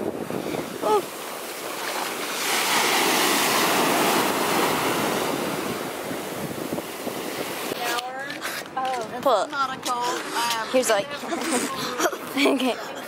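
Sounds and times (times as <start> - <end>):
ocean surf washing over sand: 0.0 - 8.2.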